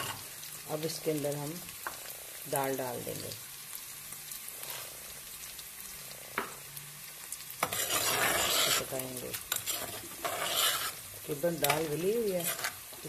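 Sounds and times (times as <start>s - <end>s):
food sizzling in oil: 0.0s - 13.0s
metal spoon scraping pot: 7.6s - 11.0s, 11.6s - 12.8s.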